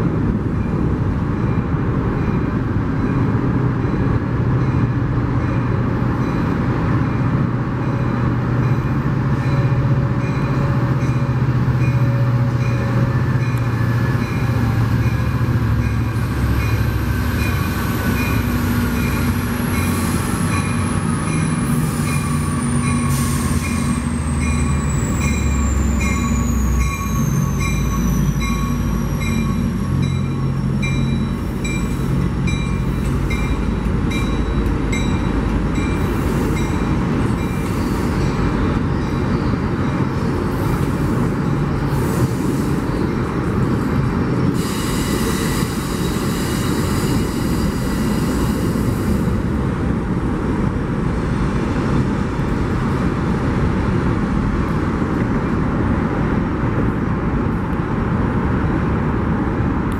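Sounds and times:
locomotive engine hum and whine: 0:00.0 - 0:59.9
train wheels rumbling on rail: 0:00.0 - 0:59.9
high wheel squeal: 0:11.9 - 0:43.5, 0:44.4 - 0:49.3.

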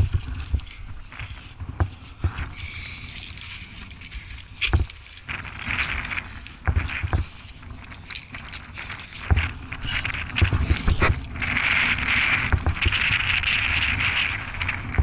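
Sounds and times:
steady hiss: 0:00.1 - 0:15.0
metal climbing gear clinking: 0:02.2 - 0:13.3.

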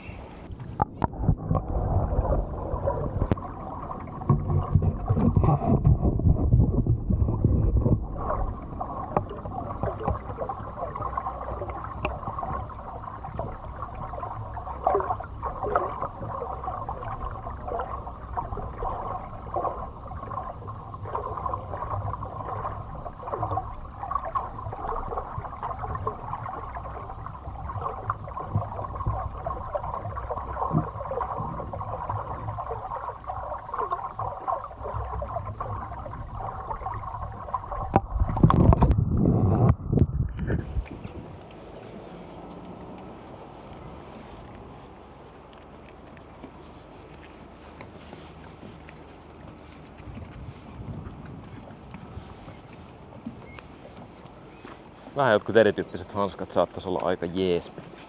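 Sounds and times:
small water splashes: 0:00.0 - 0:39.0, 0:40.4 - 0:58.0
water sloshing and gurgling: 0:00.0 - 0:58.0
heavy low rumble: 0:38.0 - 0:53.1.

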